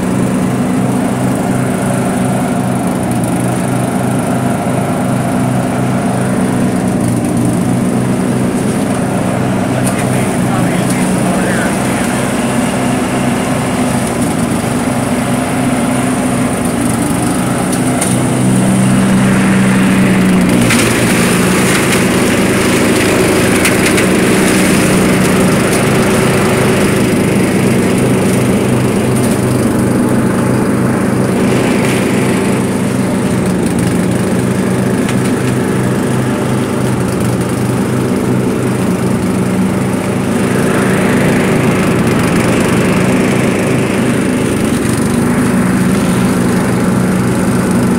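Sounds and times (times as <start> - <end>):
lawn mower engine running: 0.0 - 47.9
crackle of leaves and twigs: 17.7 - 29.9.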